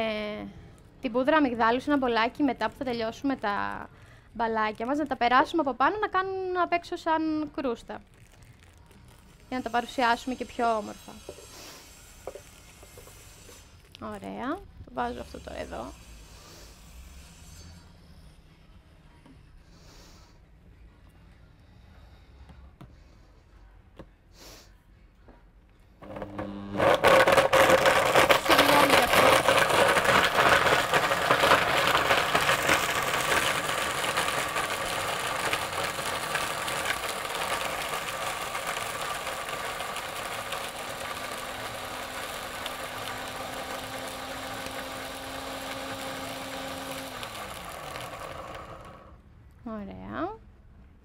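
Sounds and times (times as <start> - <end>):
blender grinding dry ingredients: 9.5 - 13.6, 26.0 - 49.2.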